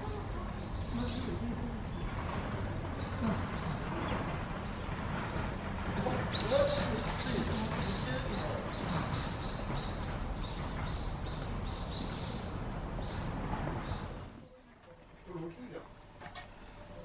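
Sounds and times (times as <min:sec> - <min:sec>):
low background rumble: 0:00.0 - 0:15.0
small bird chirping: 0:03.0 - 0:14.6.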